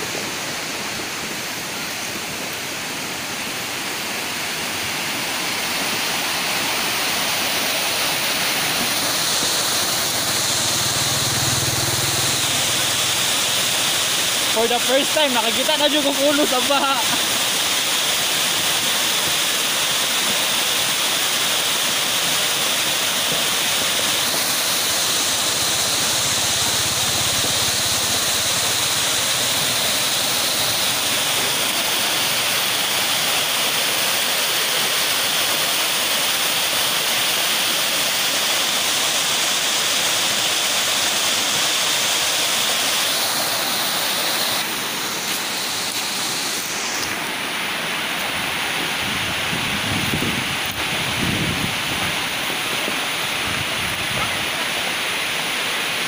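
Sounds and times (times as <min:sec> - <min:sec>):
floodwater rushing roar: 0:00.0 - 0:56.0.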